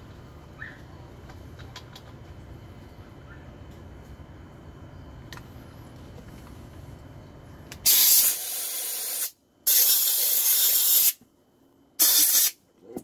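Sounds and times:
faint low hum: 0.0 - 7.9
compressed air hissing: 7.8 - 11.2, 12.0 - 12.6.

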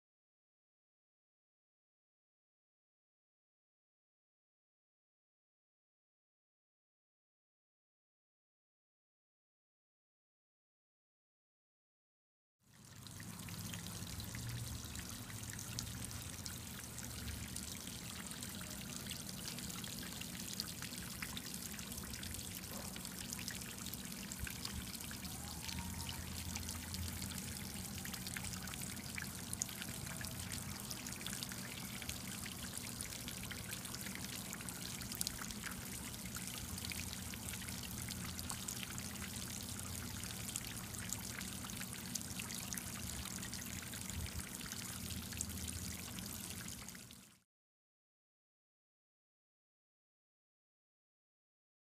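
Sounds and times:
water trickling into a tray: 12.7 - 47.4
low steady hum: 12.8 - 47.1.

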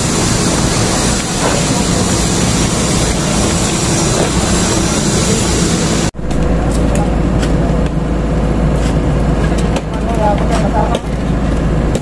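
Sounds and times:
steady broad hiss: 0.0 - 6.2
excavator diesel engine droning: 0.0 - 12.0.

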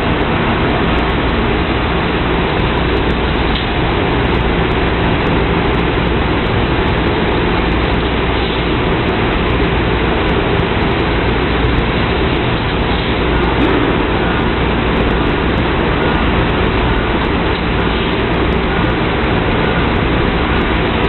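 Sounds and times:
low hum: 9.4 - 21.0.

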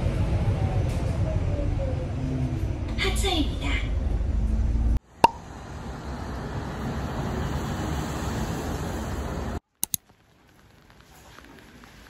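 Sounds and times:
cars passing on wet road: 5.1 - 9.6.

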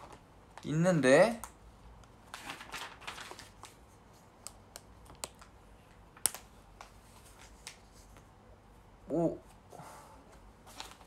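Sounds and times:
paper rustling: 2.2 - 4.3, 6.2 - 8.2, 10.6 - 11.0.

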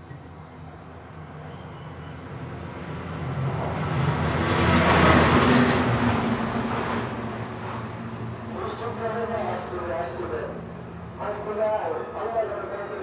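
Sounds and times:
vehicle passing by: 3.0 - 8.0.

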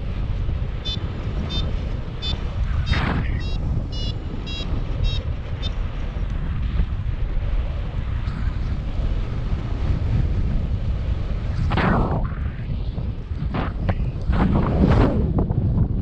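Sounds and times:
wind buffeting microphone: 0.0 - 16.0
variometer short beeps: 0.8 - 5.8.

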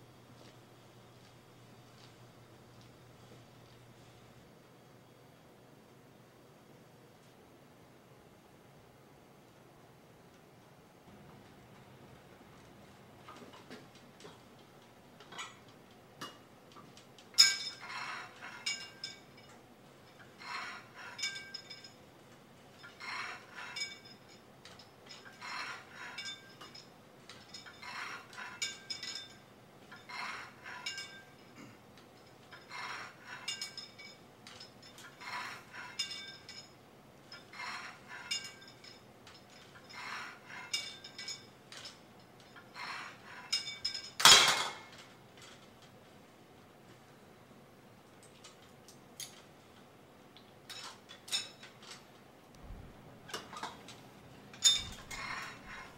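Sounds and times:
weight stack clanking: 54.6 - 55.9.

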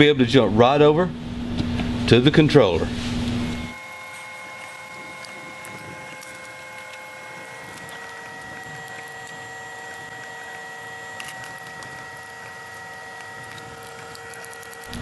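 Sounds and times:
steady background hum: 0.0 - 15.0
wiring being handled: 3.7 - 15.0.

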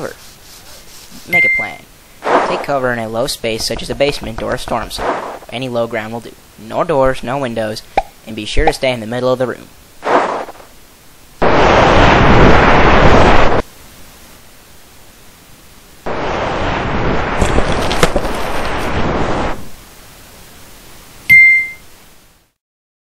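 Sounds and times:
crackles: 0.0 - 6.4, 9.8 - 15.2, 16.0 - 20.0
bright ding: 1.3 - 1.8, 21.3 - 21.9
rushing wind sound effect: 11.4 - 13.6.

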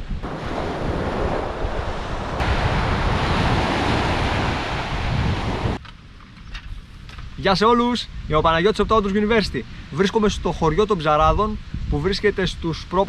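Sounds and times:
wind on microphone: 0.0 - 13.0
waves breaking on beach: 0.2 - 5.8.

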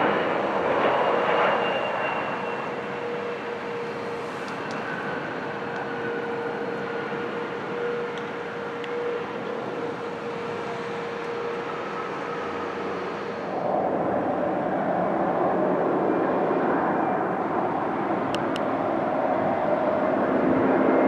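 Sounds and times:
jet engine whine: 0.0 - 21.0
jet engines rushing: 0.0 - 21.0.

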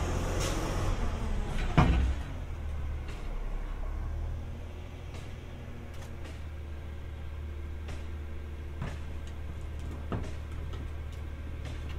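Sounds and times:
truck engine idling: 0.0 - 11.9
sharp clunks and clicks: 8.8 - 11.9.

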